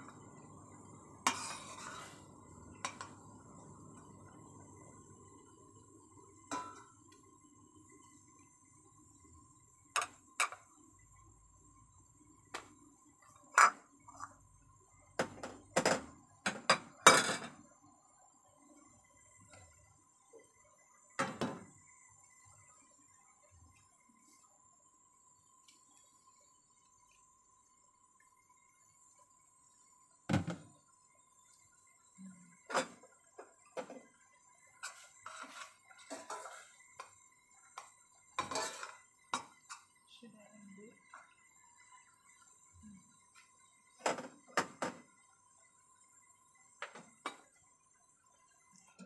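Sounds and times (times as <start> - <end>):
spoon scraping metal pot: 1.2 - 3.1, 34.8 - 36.8, 38.4 - 39.9
metal kitchenware clattering: 6.5 - 6.9, 15.9 - 17.6, 38.4 - 39.0.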